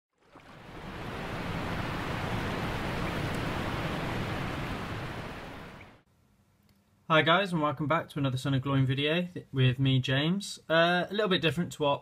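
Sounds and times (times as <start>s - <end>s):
falling water rushing: 0.2s - 6.0s.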